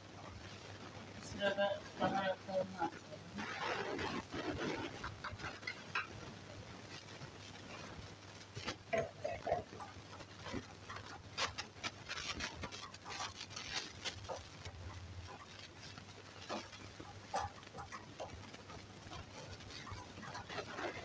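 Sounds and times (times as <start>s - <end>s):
wooden spoon scraping a pan: 7.5s - 21.0s.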